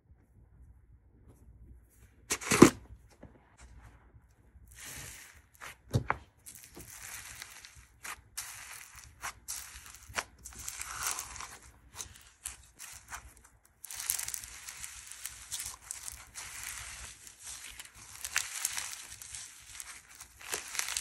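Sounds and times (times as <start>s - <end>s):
slime squishing and crackling: 4.7s - 21.0s.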